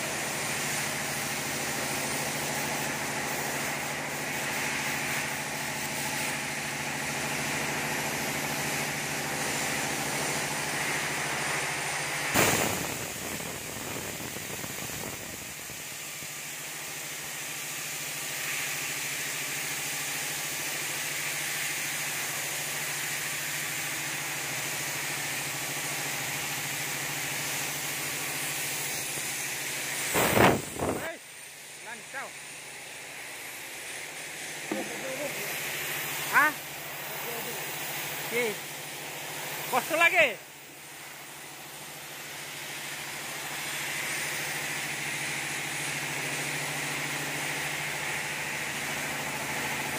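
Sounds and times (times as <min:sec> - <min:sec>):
paint spray gun hissing: 0:00.0 - 0:49.9
machine hum: 0:31.8 - 0:38.6.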